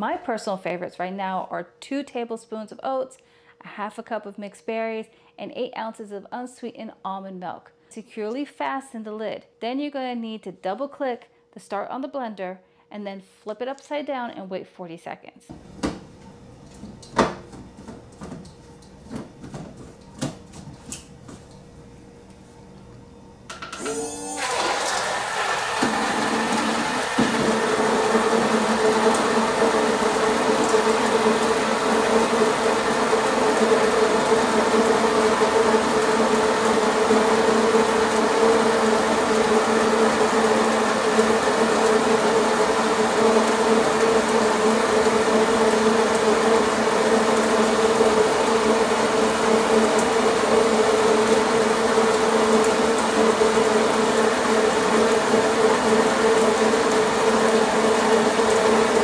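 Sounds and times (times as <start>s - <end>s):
blender motor buzzing: 23.5s - 59.0s.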